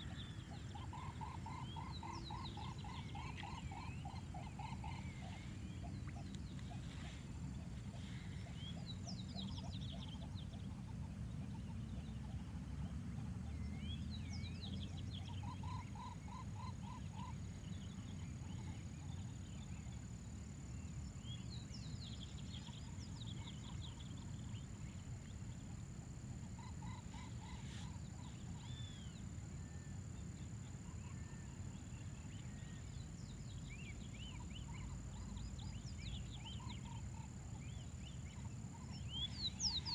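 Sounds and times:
steady low rumble: 0:00.0 - 0:15.3.

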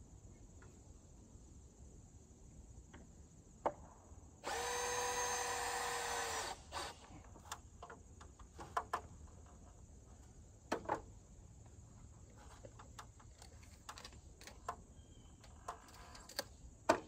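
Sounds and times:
cordless drill driving screw: 0:04.4 - 0:07.1.

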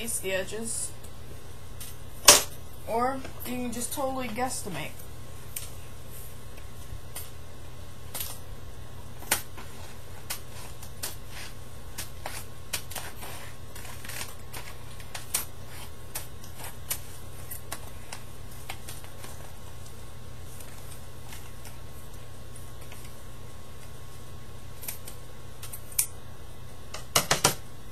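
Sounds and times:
steady low hum: 0:00.0 - 0:27.9
paper being cut and handled: 0:09.2 - 0:19.5.

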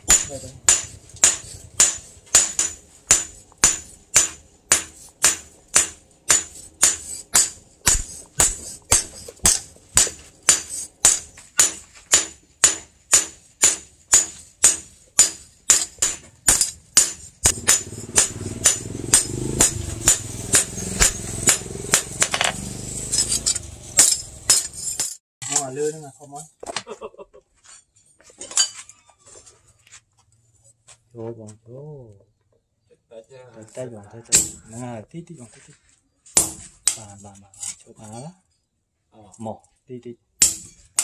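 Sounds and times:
hammer striking steel: 0:00.0 - 0:25.6, 0:34.3 - 0:34.7, 0:36.4 - 0:37.1, 0:40.4 - 0:41.0.

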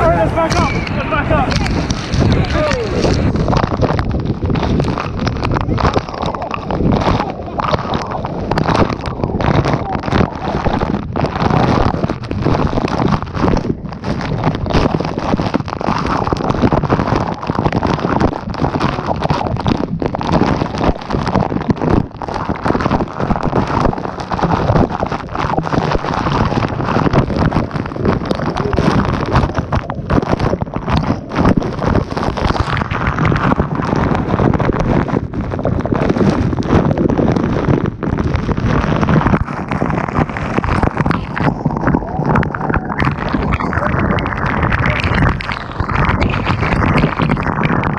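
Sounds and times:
waterfall rushing: 0:00.0 - 0:12.4, 0:39.4 - 0:47.7
spray and wind on microphone: 0:00.0 - 0:47.9.

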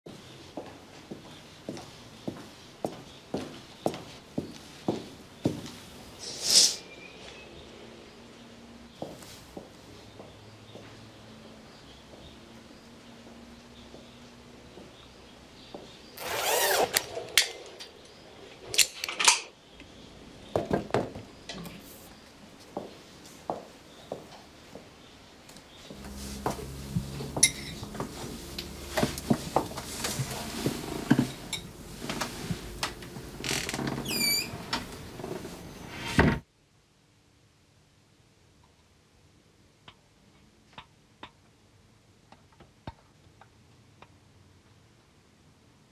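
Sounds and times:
short high squeaks: 0:16.2 - 0:17.3, 0:25.9 - 0:29.2, 0:33.4 - 0:34.8
steady low hum: 0:25.7 - 0:35.9
scraping noise: 0:25.9 - 0:34.0
knocks and clinks: 0:27.3 - 0:28.0.

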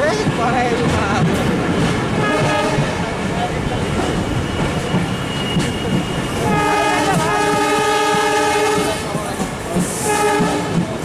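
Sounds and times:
train running noise: 0:00.0 - 0:11.0
train wheels clicking on rails: 0:00.0 - 0:11.0
locomotive horn blast: 0:06.4 - 0:09.1, 0:10.0 - 0:10.8.

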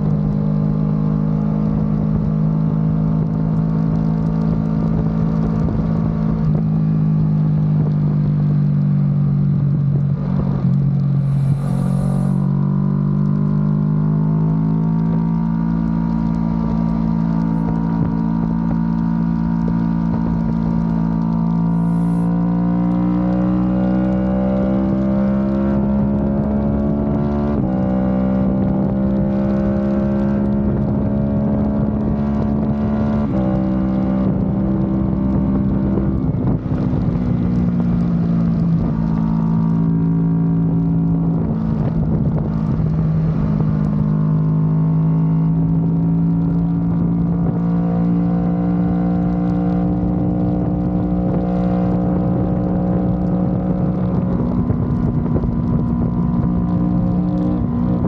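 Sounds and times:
motorcycle engine cruising: 0:00.0 - 0:58.0
wind on microphone: 0:09.9 - 0:12.5, 0:25.8 - 0:39.8, 0:40.6 - 0:44.7, 0:45.4 - 0:58.0.

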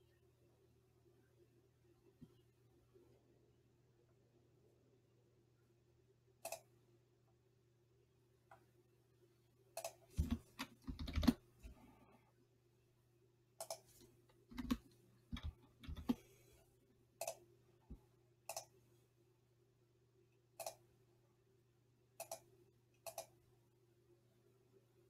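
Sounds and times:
faint steady hum: 0:00.0 - 0:25.0
computer mouse clicks: 0:06.4 - 0:06.7, 0:09.8 - 0:11.4, 0:13.6 - 0:16.3, 0:17.2 - 0:17.4, 0:18.5 - 0:18.8, 0:20.6 - 0:20.8, 0:22.2 - 0:23.4.

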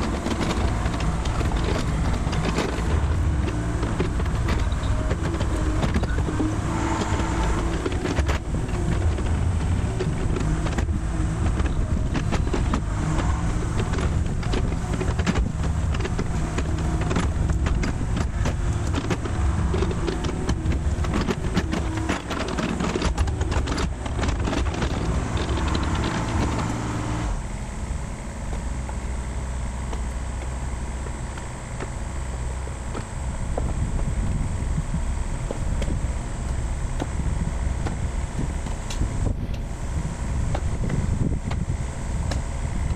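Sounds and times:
metal clanks and knocks: 0:00.0 - 0:27.0
excavator diesel engine running: 0:00.0 - 0:42.9.

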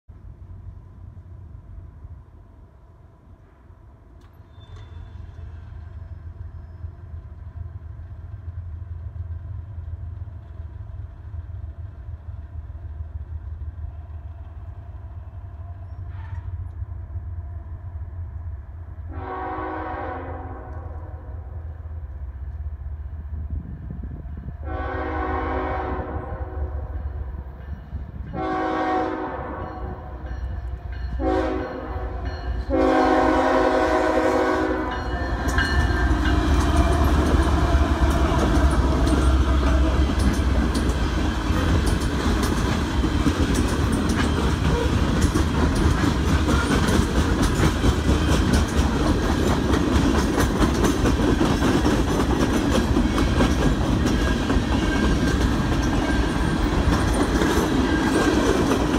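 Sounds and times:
diesel locomotives passing: 0:00.1 - 0:58.9
locomotive horn: 0:15.9 - 0:16.8, 0:19.1 - 0:21.6, 0:24.6 - 0:27.0, 0:28.3 - 0:30.2, 0:31.1 - 0:40.2
freight cars rumbling: 0:20.6 - 0:58.9
wheels clacking over rail joints: 0:34.8 - 0:58.9.

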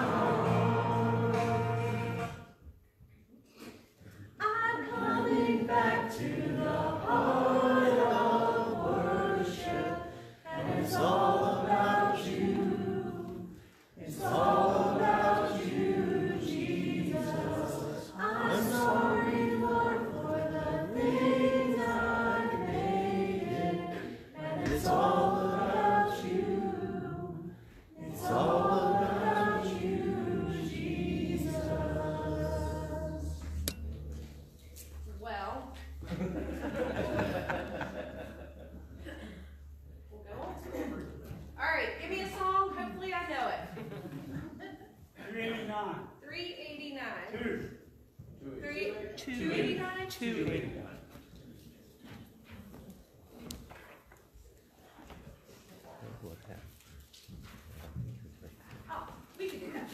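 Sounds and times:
choir-like vocal harmonies: 0:00.0 - 0:02.7, 0:04.0 - 0:41.8.

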